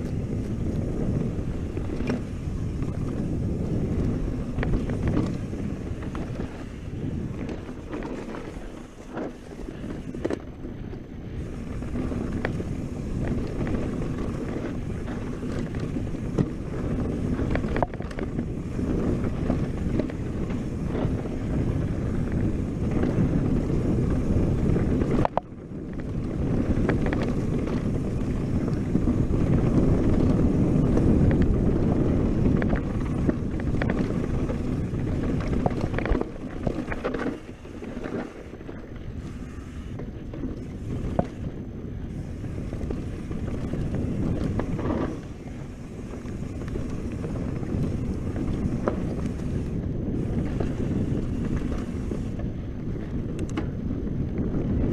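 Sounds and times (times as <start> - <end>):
bike clicks and rattles: 0.0 - 54.9
wind buffeting microphone: 0.0 - 54.9
tyres rumbling on dirt: 11.4 - 54.9.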